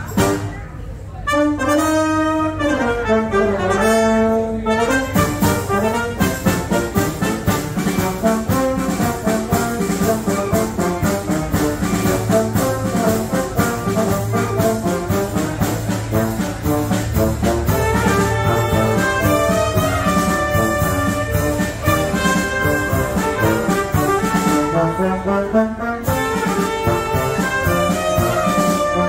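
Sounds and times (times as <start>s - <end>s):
brass and saxophones playing: 0.0s - 0.6s, 1.2s - 29.0s
drum kit beat: 5.2s - 25.3s, 26.0s - 29.0s.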